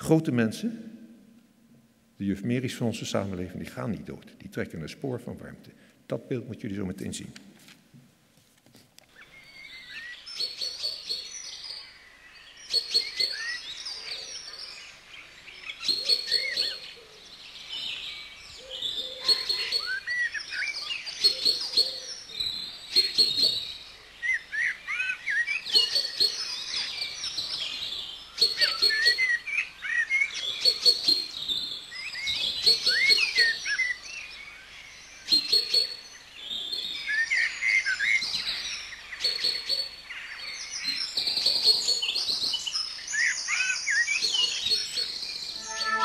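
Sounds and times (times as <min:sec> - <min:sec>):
birds chirping and whistling: 0:12.6 - 0:14.5, 0:15.8 - 0:17.0, 0:17.7 - 0:27.8, 0:28.4 - 0:46.0.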